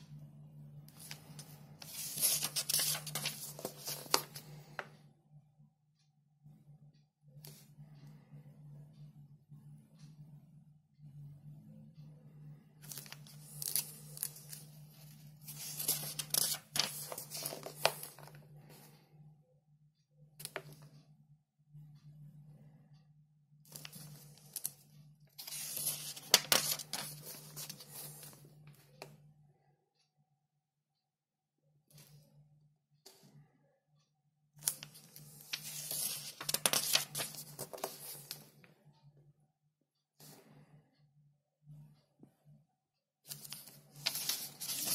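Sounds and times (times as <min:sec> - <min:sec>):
paper pages rustling: 0:00.9 - 0:04.9, 0:12.8 - 0:18.4, 0:25.4 - 0:28.4, 0:34.6 - 0:38.5, 0:43.3 - 0:44.9.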